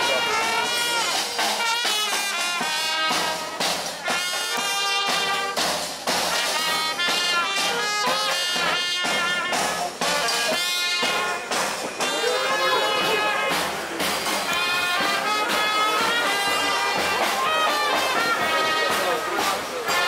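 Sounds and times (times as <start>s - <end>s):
jazz brass music: 0.0s - 20.0s.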